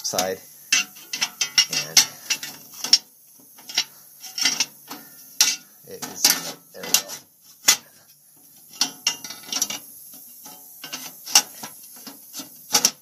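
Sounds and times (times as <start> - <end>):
sheet metal scraping: 0.0 - 9.8, 10.4 - 13.0.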